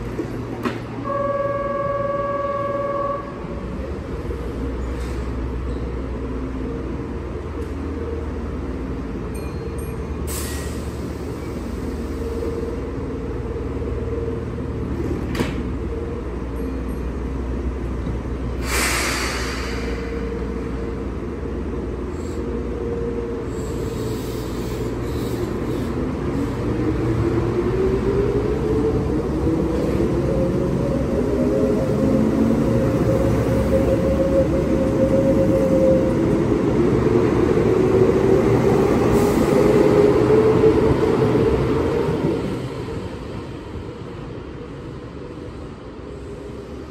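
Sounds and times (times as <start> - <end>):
short air hisses: 18.6 - 20.3.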